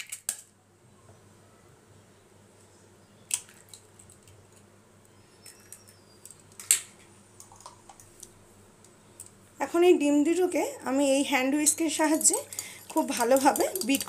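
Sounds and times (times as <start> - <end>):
eggs cracking into glass bowl: 0.0 - 0.5, 3.3 - 4.4, 12.0 - 14.0.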